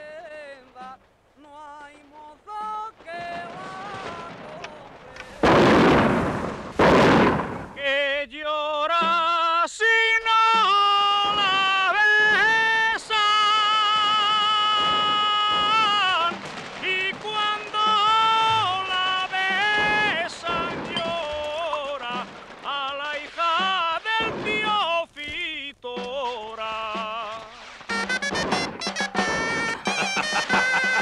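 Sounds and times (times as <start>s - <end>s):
man singing with vibrato: 0.0s - 5.1s, 7.8s - 31.0s
fireworks bursting: 0.0s - 31.0s.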